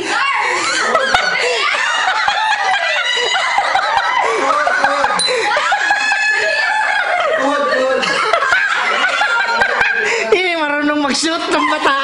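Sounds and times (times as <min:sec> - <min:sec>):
people shouting: 0:00.0 - 0:08.2
group laughing and shrieking: 0:00.0 - 0:10.6, 0:11.2 - 0:12.0.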